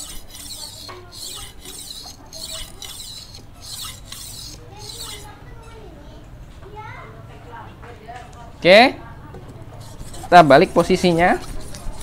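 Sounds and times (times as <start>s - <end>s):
blade scraping on whetstone: 0.0s - 5.4s, 9.7s - 12.0s.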